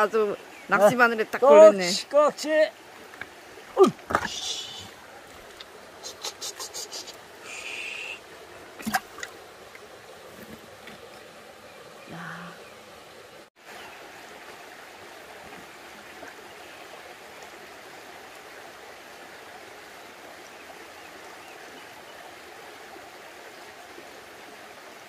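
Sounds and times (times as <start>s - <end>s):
stream running over rocks: 0.0s - 25.0s.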